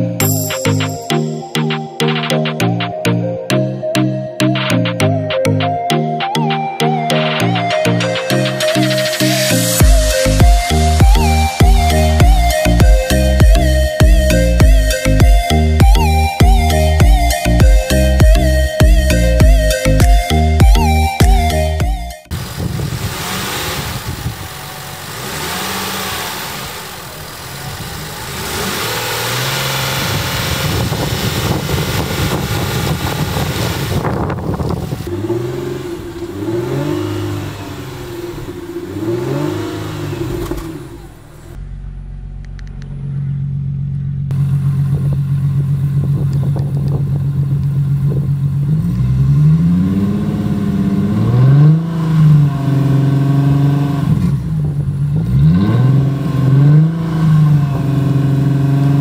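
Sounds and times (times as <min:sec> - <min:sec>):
car engine revving: 0:06.6 - 0:59.0
car engine idling: 0:06.8 - 0:59.0.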